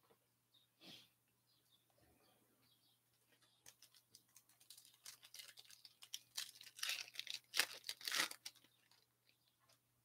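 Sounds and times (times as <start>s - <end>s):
foil pack crinkling: 3.6s - 9.1s.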